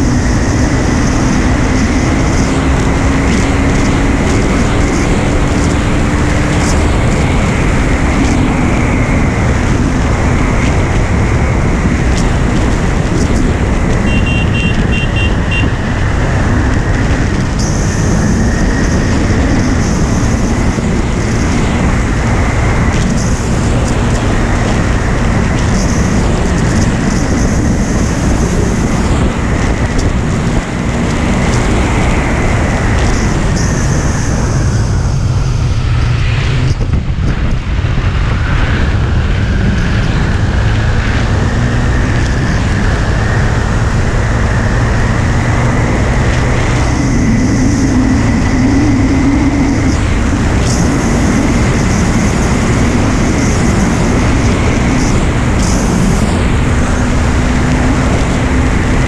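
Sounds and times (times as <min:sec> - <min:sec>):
motorcycle engine: 0:00.0 - 0:59.0
wind noise on microphone: 0:00.0 - 0:59.0.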